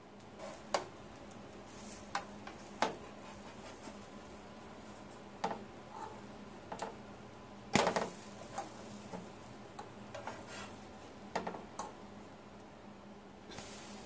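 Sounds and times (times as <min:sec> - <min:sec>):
spatula scraping a griddle pan: 0:02.9 - 0:04.1, 0:05.9 - 0:06.3, 0:10.2 - 0:10.8.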